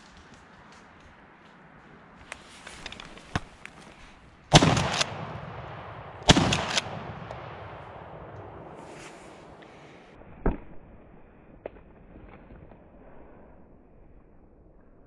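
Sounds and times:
shotgun shots: 0:04.5 - 0:09.6.

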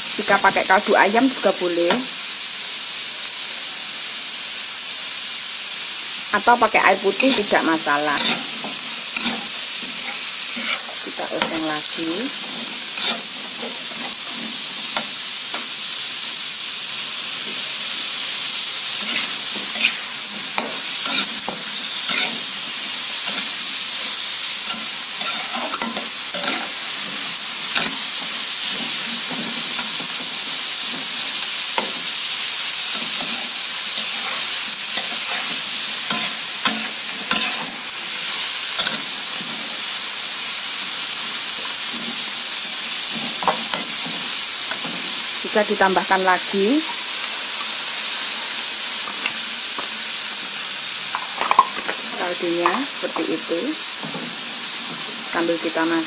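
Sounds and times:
vegetables sizzling in a wok: 0:00.0 - 0:56.0
metal spatula scraping a pan: 0:06.6 - 0:15.7, 0:18.9 - 0:23.5, 0:24.6 - 0:30.2, 0:32.9 - 0:39.6.

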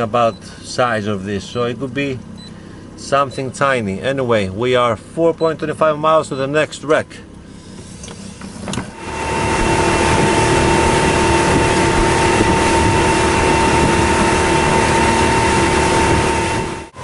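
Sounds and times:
outboard motor drone: 0:07.2 - 0:17.0.

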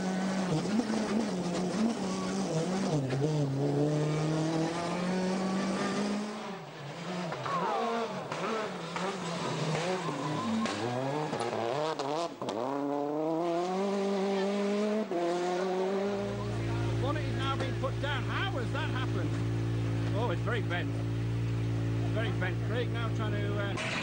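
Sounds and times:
rally car engine revving: 0:00.0 - 0:24.0.

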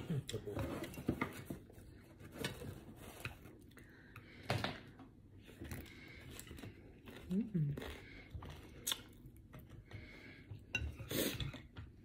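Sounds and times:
chewing: 0:05.5 - 0:11.8.

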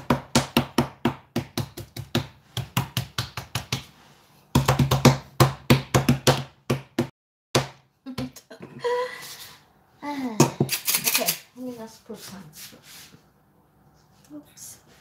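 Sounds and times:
palms patting dough: 0:00.0 - 0:08.4.

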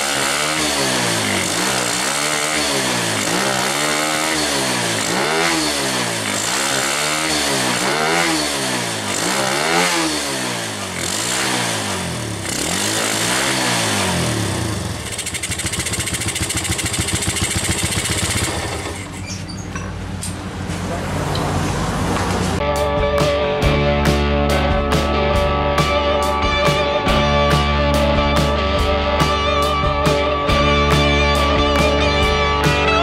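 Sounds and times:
motorcycle engine revving: 0:00.0 - 0:22.6
motorcycle engine idling: 0:11.8 - 0:20.5.

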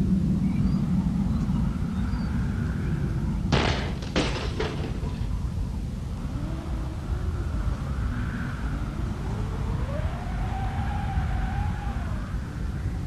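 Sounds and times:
wind howling in gusts: 0:00.0 - 0:13.0
faint whistles: 0:00.4 - 0:03.1
sharp bangs: 0:03.5 - 0:05.6.

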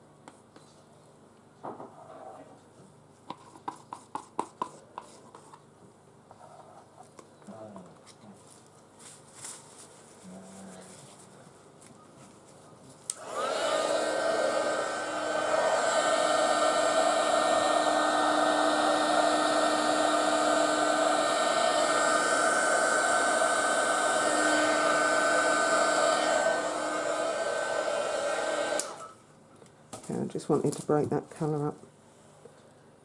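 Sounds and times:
heat gun fan blowing: 0:13.1 - 0:29.2
heat gun switch click: 0:28.8 - 0:29.1.

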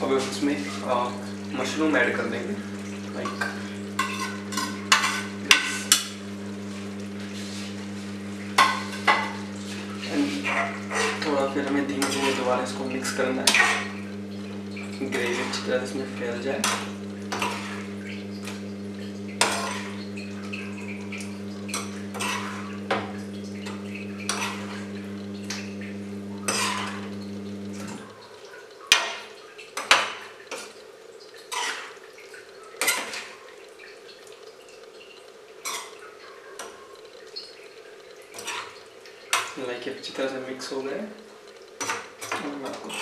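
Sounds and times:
steady low hum: 0:00.0 - 0:28.2
ladle scraping metal pan: 0:03.1 - 0:06.2, 0:08.5 - 0:14.0, 0:15.0 - 0:18.7, 0:19.4 - 0:21.1, 0:21.7 - 0:24.9, 0:26.4 - 0:27.2.

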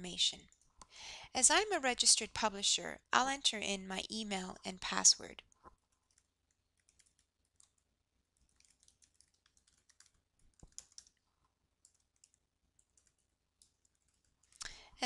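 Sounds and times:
computer keyboard typing: 0:05.8 - 0:11.2, 0:11.8 - 0:14.6.

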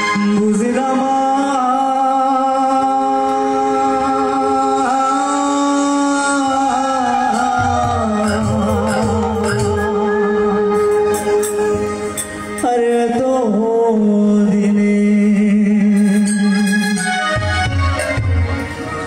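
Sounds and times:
man singing through a pa: 0:00.0 - 0:11.3, 0:12.6 - 0:17.0
keyboard accompaniment: 0:00.0 - 0:19.0
low drum beat: 0:07.3 - 0:09.9.

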